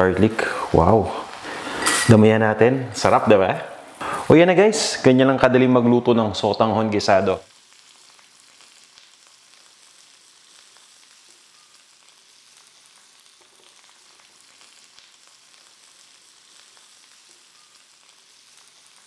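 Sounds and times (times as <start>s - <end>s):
faint sizzling in a wok: 0.0s - 19.0s
small crackles: 7.4s - 19.0s.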